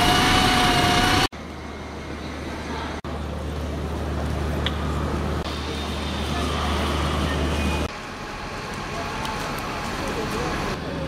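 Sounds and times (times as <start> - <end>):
city street traffic: 0.0 - 11.0
vehicle engine drone: 0.0 - 11.0.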